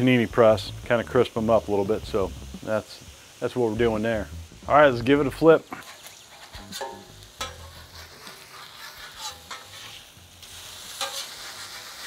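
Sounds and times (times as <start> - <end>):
meat sizzling on a griddle: 0.0 - 12.0
metal spatula scraping steel: 5.8 - 12.0.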